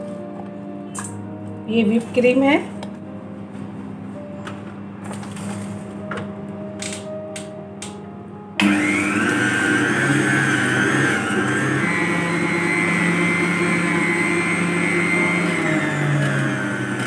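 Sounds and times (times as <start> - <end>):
stand mixer whipping cream: 8.6 - 17.0.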